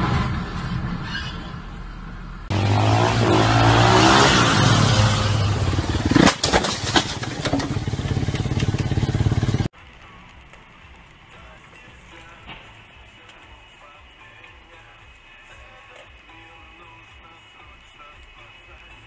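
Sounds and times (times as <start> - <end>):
vehicle engine revving: 2.4 - 9.7
crash impacts and clatter: 4.2 - 9.7.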